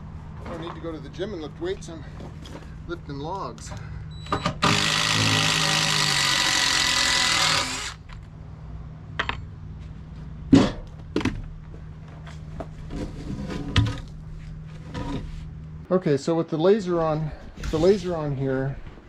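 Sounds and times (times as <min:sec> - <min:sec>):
cordless drill whining: 0:04.2 - 0:08.1.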